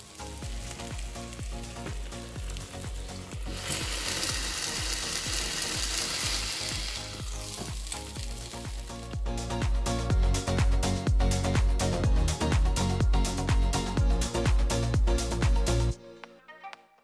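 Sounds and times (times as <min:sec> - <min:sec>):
gummy candy sizzling on hot plates: 0:00.0 - 0:09.2
background music with steady beat: 0:00.0 - 0:17.0.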